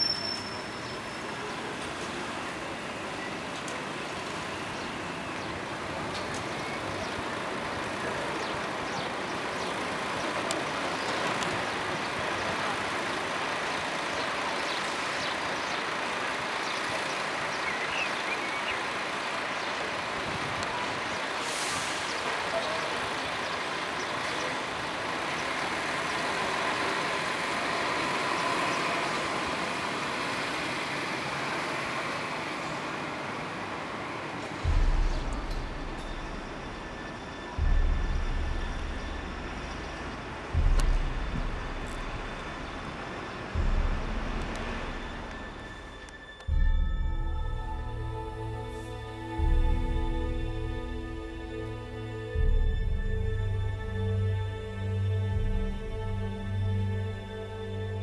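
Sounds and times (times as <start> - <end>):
town traffic noise: 0.0 - 58.0
brief hiss: 21.4 - 22.4.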